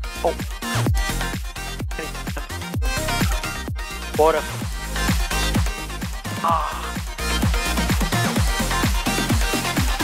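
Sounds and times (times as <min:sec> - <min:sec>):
electronic dance music: 0:00.0 - 0:10.0
vocal exclamation: 0:06.3 - 0:07.0.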